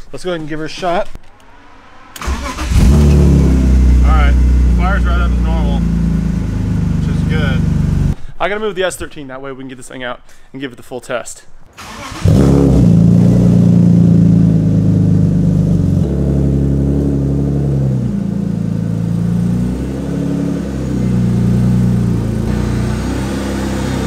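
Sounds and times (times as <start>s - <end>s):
car engine idling: 1.3s - 8.2s, 11.8s - 24.0s.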